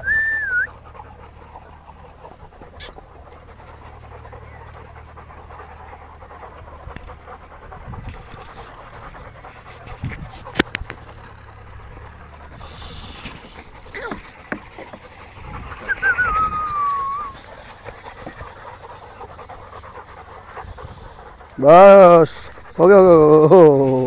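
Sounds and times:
dog panting: 0.0 - 24.0.

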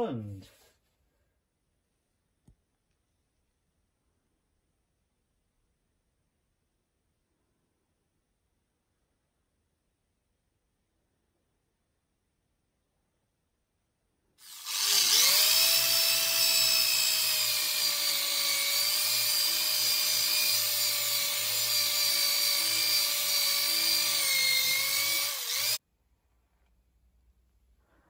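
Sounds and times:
drill with wire wheel scrubbing: 14.4 - 25.8.

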